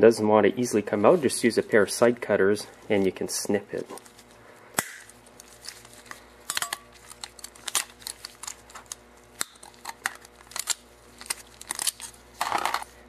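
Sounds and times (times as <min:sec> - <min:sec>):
metal parts clinking: 0:06.5 - 0:06.8.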